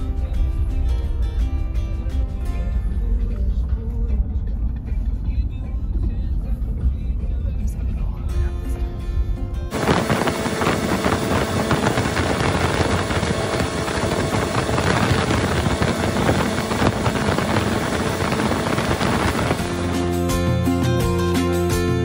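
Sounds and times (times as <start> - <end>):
water rushing off hull: 9.7 - 20.0
wind rushing: 9.7 - 20.1
outboard motor running: 9.7 - 20.2.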